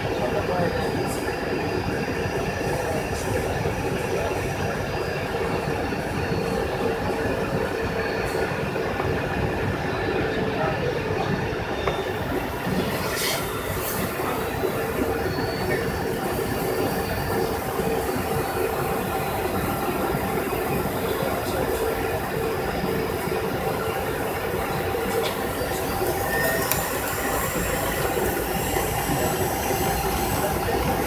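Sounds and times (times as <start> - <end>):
airliner cabin engine and air noise: 0.0 - 31.0.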